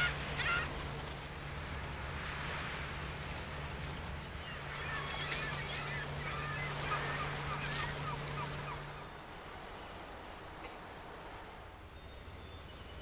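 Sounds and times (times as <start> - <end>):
flock of birds calling: 0.0 - 0.8, 4.2 - 9.2.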